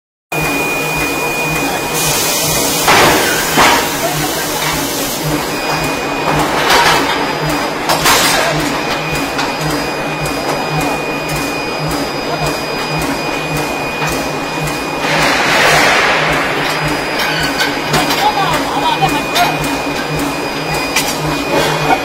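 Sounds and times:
forging machinery humming: 0.3 - 22.0
loud bangs of metal: 2.8 - 4.0, 15.0 - 18.5.

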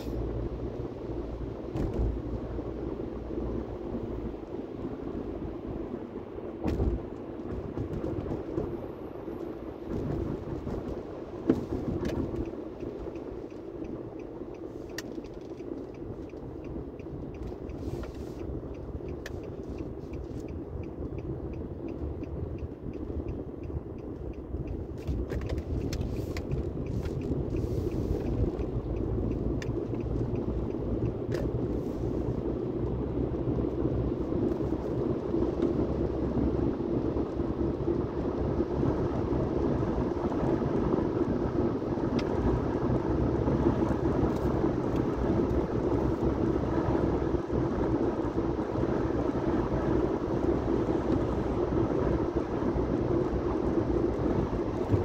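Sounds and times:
car engine and tyres rumbling: 0.0 - 55.0
faint ticks: 12.4 - 32.1.

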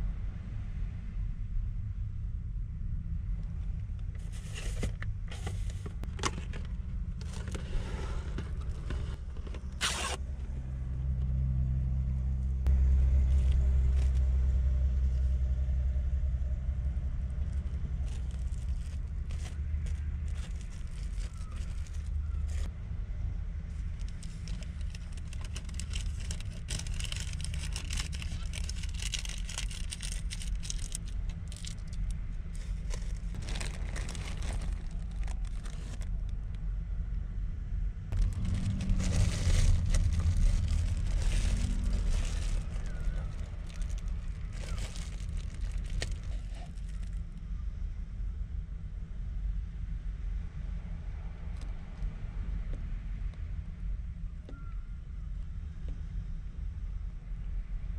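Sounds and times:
low rumble: 0.0 - 57.9
plastic wrap crinkling: 18.0 - 22.7, 23.9 - 36.2, 38.2 - 47.2.

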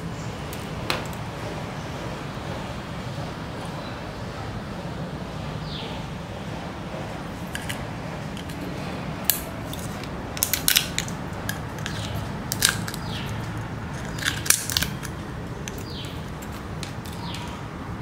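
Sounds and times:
pliers snapping seashell: 9.2 - 17.4.

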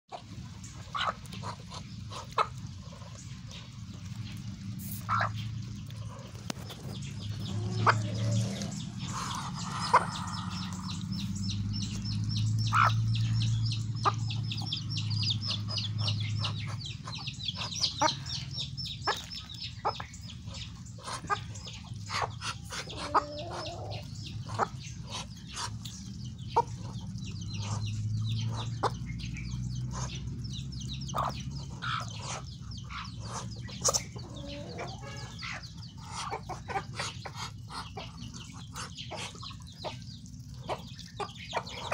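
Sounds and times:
beaks tapping the ground: 0.1 - 41.9.

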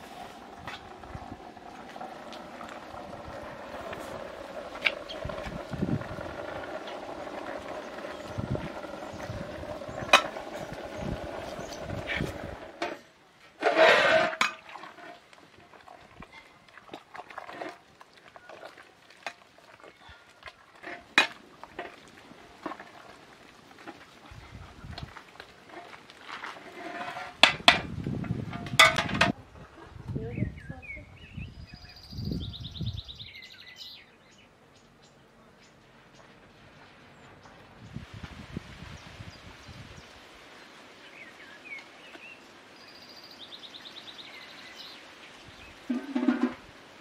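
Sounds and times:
wood fire crackling: 0.0 - 13.6, 14.4 - 28.2
metal ladle stirring in metal pot: 0.0 - 24.2, 25.1 - 27.9, 45.9 - 46.6
ladle clinking and scraping pot: 11.5 - 19.4, 20.8 - 23.2, 25.7 - 27.9, 28.5 - 29.4, 45.9 - 46.6.

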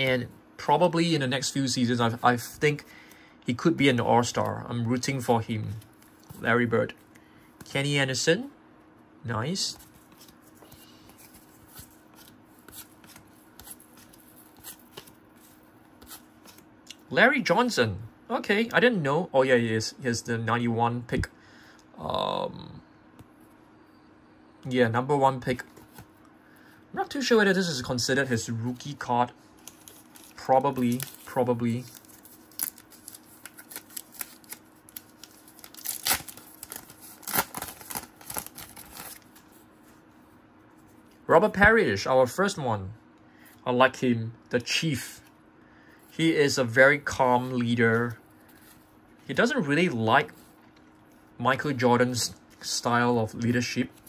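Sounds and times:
cardboard cards being flipped: 9.8 - 16.7.

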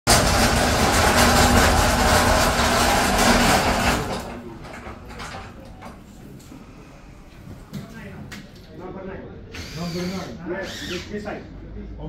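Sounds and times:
machinery humming: 0.1 - 7.4.

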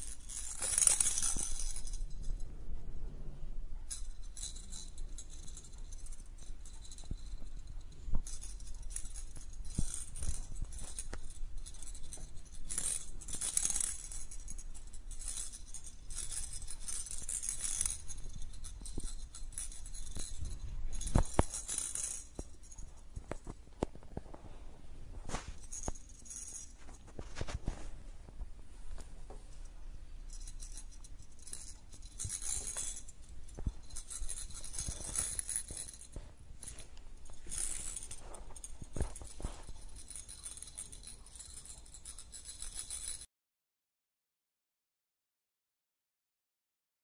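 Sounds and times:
toy clicking and knocking: 0.0 - 2.2, 30.3 - 43.3
toy mouse rattling and jingling: 0.0 - 2.4, 3.9 - 23.5, 25.5 - 27.1, 30.3 - 43.3.

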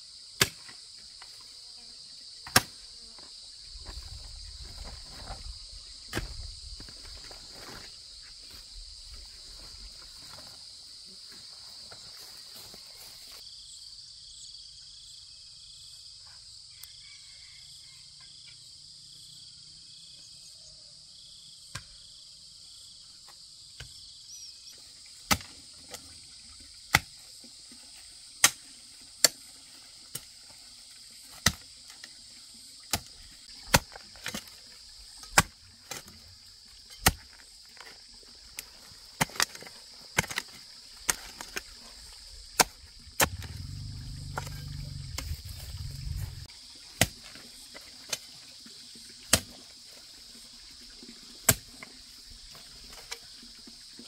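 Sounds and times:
high-pitched insect chorus: 0.0 - 54.0.

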